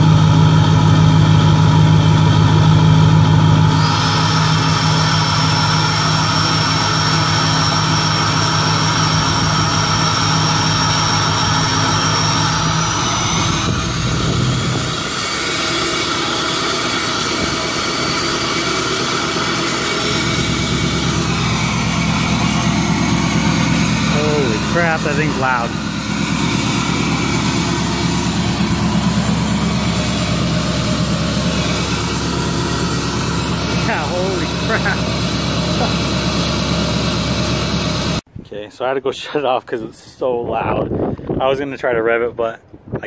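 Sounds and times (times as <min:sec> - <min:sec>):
diesel engine idling: 0:00.0 - 0:38.3
turbo whistle: 0:03.7 - 0:35.1.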